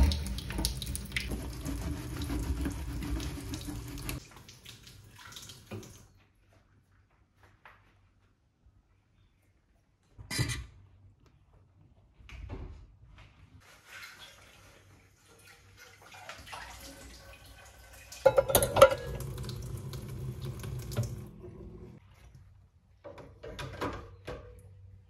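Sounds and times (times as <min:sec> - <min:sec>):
metal pots and rack clattering: 0:00.0 - 0:03.7, 0:18.2 - 0:19.6.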